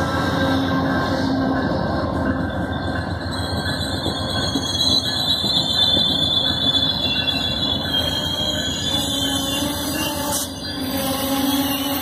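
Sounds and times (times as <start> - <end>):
train wheels rumbling on rails: 0.0 - 12.0
high brake squeal: 2.4 - 12.0.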